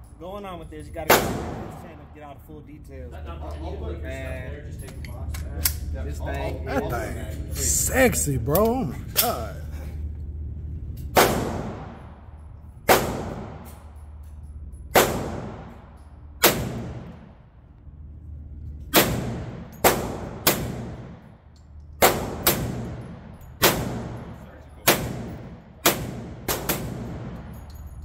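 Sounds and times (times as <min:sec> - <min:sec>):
single gunshots: 0:01.1 - 0:02.0, 0:11.2 - 0:12.0, 0:12.9 - 0:13.7, 0:15.0 - 0:15.8, 0:16.4 - 0:17.3, 0:23.6 - 0:27.4.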